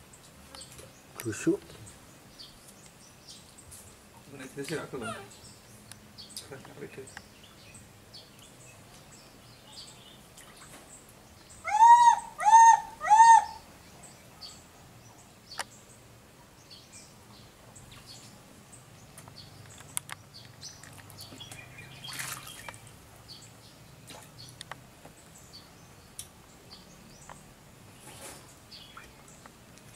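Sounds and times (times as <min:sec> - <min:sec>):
water splash: 0:22.0 - 0:22.9.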